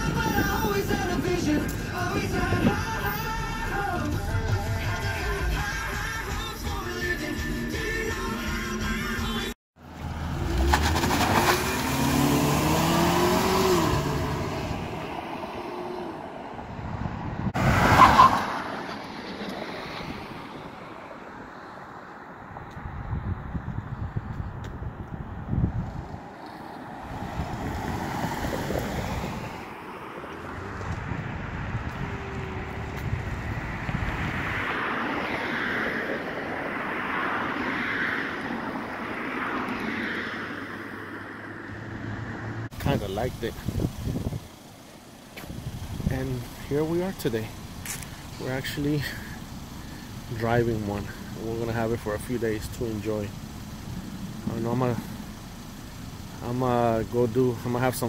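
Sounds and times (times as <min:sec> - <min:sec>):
wind on microphone: 0:00.0 - 0:03.2, 0:16.6 - 0:17.7, 0:22.6 - 0:26.4, 0:27.0 - 0:34.7, 0:43.6 - 0:44.5
car driving by: 0:00.0 - 0:07.0, 0:08.1 - 0:22.0, 0:25.7 - 0:56.7
car engine accelerating: 0:09.8 - 0:18.5.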